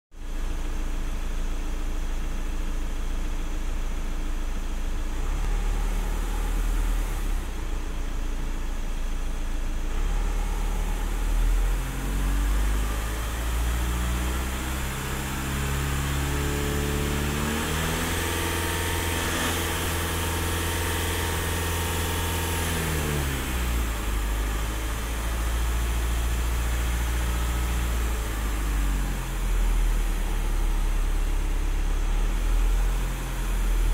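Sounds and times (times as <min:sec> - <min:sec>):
car engine revving: 0:09.9 - 0:33.9.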